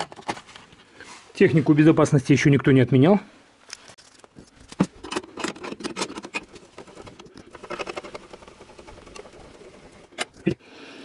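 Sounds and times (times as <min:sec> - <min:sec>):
car jack clicking and rattling: 0:05.0 - 0:10.4.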